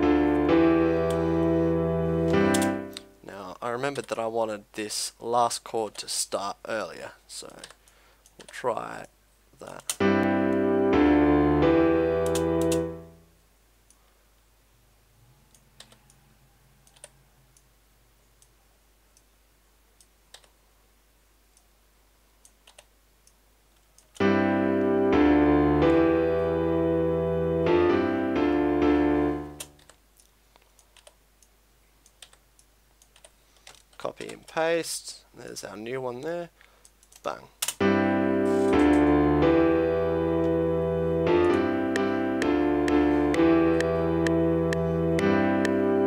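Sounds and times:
piano chords: 0:00.0 - 0:03.3, 0:10.0 - 0:13.3, 0:24.2 - 0:29.8, 0:37.8 - 0:46.0
faint clicking: 0:07.4 - 0:08.6, 0:20.0 - 0:20.6, 0:29.6 - 0:34.5.

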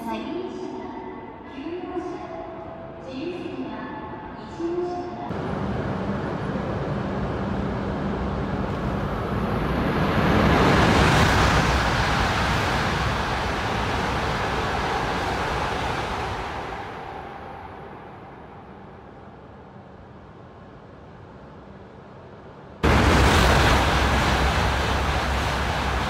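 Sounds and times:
high-speed train rushing past: 0:05.3 - 0:26.0.

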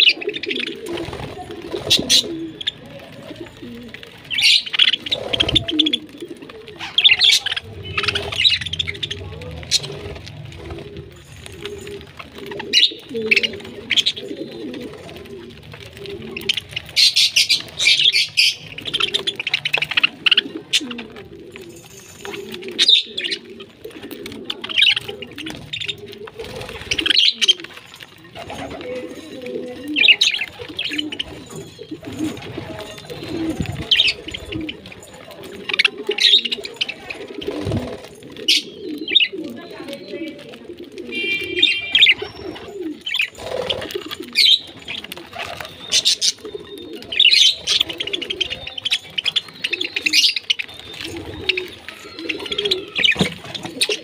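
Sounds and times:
wings fluttering: 0:00.0 - 0:54.0
budgerigars chirping: 0:06.8 - 0:09.9, 0:16.5 - 0:20.5, 0:45.4 - 0:54.0.

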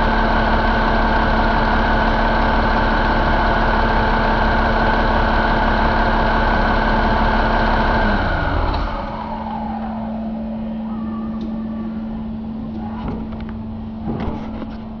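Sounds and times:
diesel engine running: 0:00.0 - 0:15.0
steady hum: 0:08.9 - 0:15.0.

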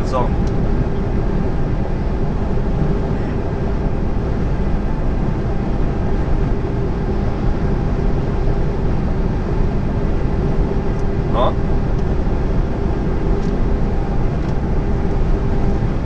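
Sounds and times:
lorry diesel engine droning: 0:00.0 - 0:16.0.

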